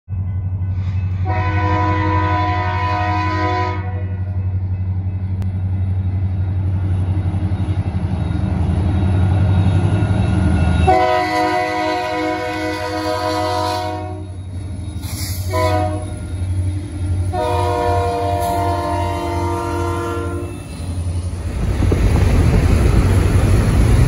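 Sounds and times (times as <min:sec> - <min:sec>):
train rumbling: 0:00.1 - 0:24.0
locomotive air horn blasts: 0:01.2 - 0:04.3, 0:10.9 - 0:14.4, 0:15.3 - 0:16.3, 0:17.3 - 0:20.7.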